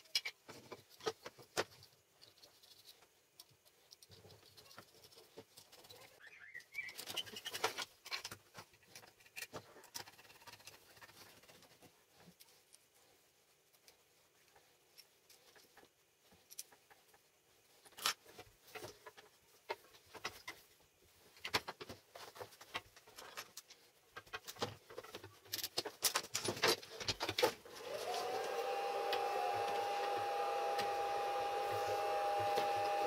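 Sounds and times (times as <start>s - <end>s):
metal parts and tools clicking: 0.0s - 1.3s
small motor whirring: 27.7s - 33.0s.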